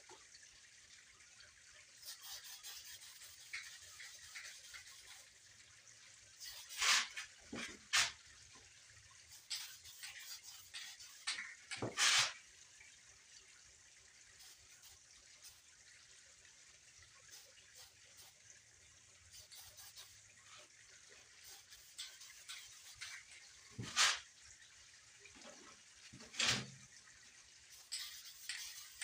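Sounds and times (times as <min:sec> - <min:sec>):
spray paint can hissing: 0:02.0 - 0:05.2, 0:06.4 - 0:07.2, 0:09.3 - 0:11.4, 0:14.4 - 0:15.6, 0:17.3 - 0:18.4, 0:19.3 - 0:20.2, 0:21.4 - 0:23.2, 0:23.8 - 0:24.2, 0:27.7 - 0:29.0.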